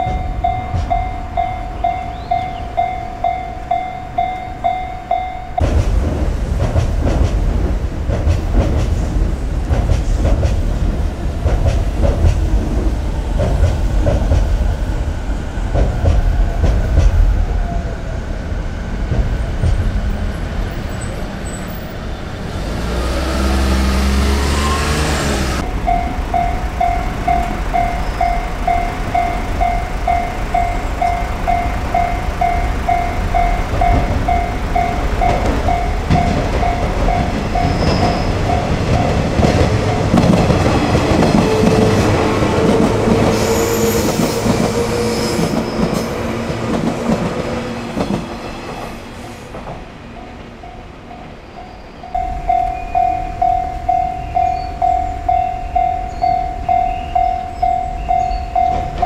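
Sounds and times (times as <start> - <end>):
level-crossing warning bell: 0.0 - 5.7, 23.6 - 47.4, 48.4 - 59.0
train wheels clacking: 0.0 - 17.7, 18.9 - 51.3, 52.1 - 59.0
electric train motor whine: 22.6 - 45.5.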